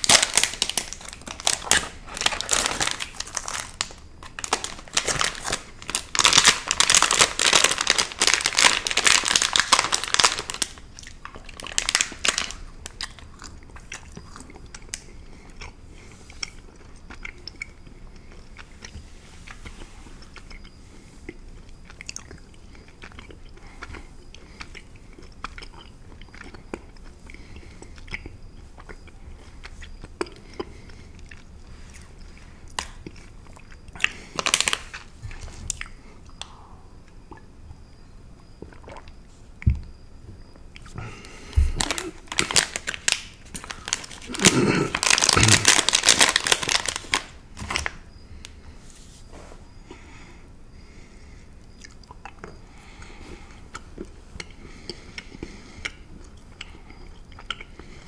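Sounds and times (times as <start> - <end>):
plastic wrapper crinkling: 0.0 - 13.2, 34.0 - 35.8, 41.5 - 48.0
mouth chewing candy: 0.0 - 48.5, 50.8 - 58.0.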